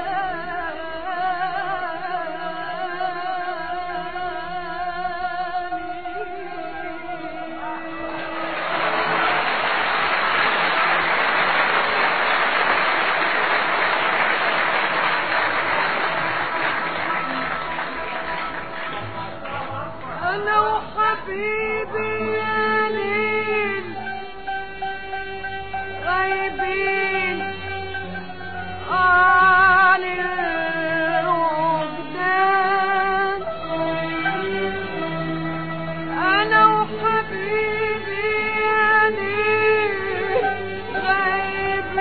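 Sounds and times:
classical arabic music: 0:00.0 - 0:42.0
audience applauding: 0:08.0 - 0:20.4.

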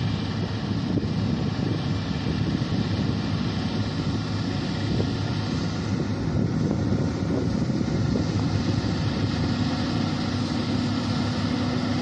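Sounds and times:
combine harvester drone: 0:00.0 - 0:12.0
wind buffeting microphone: 0:00.0 - 0:12.0.

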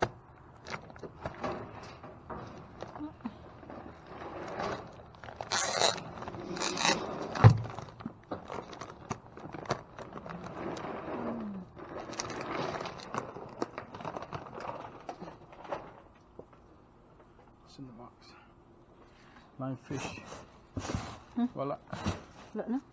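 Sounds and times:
plastic bags rustling: 0:00.2 - 0:16.3.

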